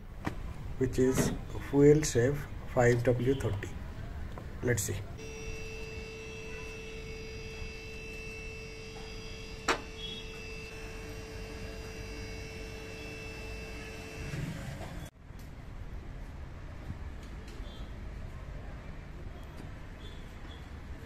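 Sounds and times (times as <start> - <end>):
car lift motor humming whine: 5.1 - 15.1.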